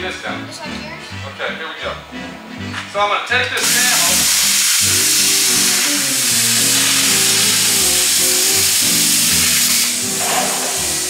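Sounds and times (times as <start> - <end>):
plasma cutter hissing: 3.6 - 11.0.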